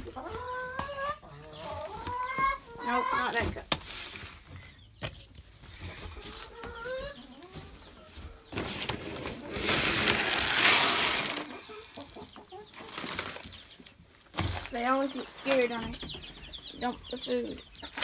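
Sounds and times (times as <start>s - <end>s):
chickens clucking: 0.0s - 18.0s
chicken feed pouring: 5.9s - 13.7s.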